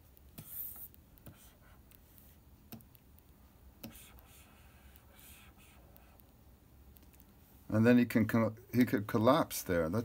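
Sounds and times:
pen stroke scratch: 0.3 - 2.4, 3.8 - 6.2
stylus tapping on screen: 2.7 - 7.3.

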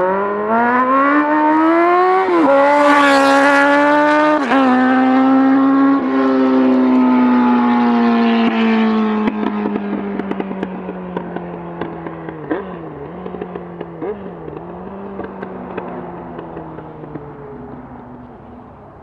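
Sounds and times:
motorcycle engine riding away: 0.0 - 19.0
exhaust pops and crackles: 9.2 - 18.4.

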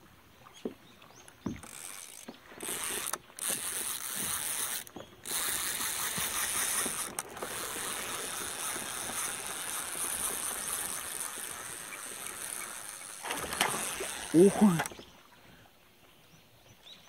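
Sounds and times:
fishing reel ratcheting clicks: 1.6 - 14.9.

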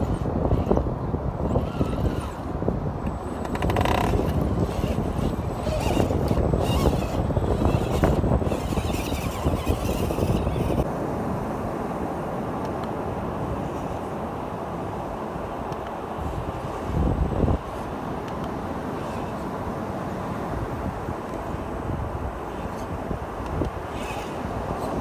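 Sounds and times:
electric drivetrain whirring: 0.0 - 10.9, 22.5 - 25.0
tyres rattling on rock: 1.6 - 10.8.

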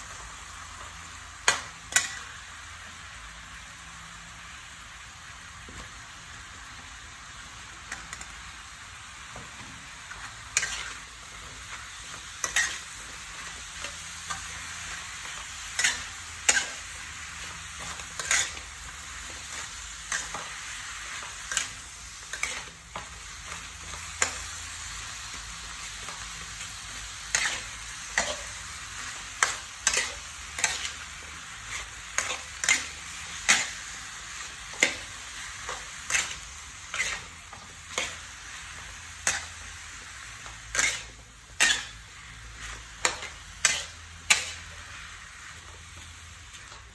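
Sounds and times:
food sizzling in a wok: 0.0 - 46.9
metal spatula scraping a pan: 10.1 - 24.5, 27.3 - 39.7, 40.3 - 46.9.

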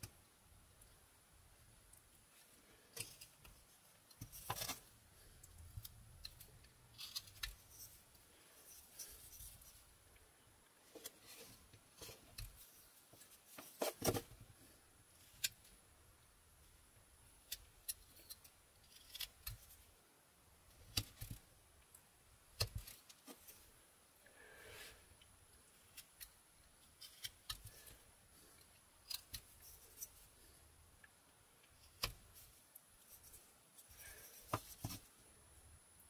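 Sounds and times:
knife carving wood: 3.0 - 9.9, 11.0 - 14.2, 15.1 - 15.7, 17.2 - 20.0, 20.7 - 21.5, 22.4 - 23.6, 25.6 - 30.6, 31.6 - 35.1.

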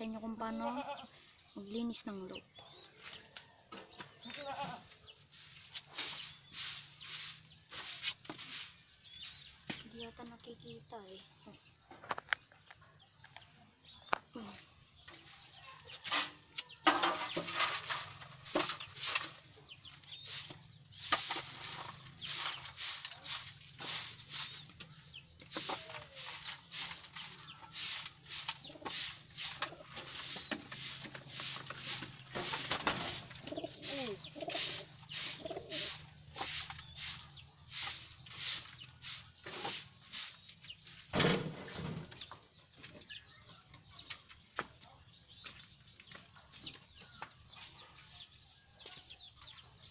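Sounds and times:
twig broom sweeping dirt: 4.3 - 10.4, 15.1 - 41.9
knock or scrape: 16.0 - 19.4, 21.0 - 24.1.

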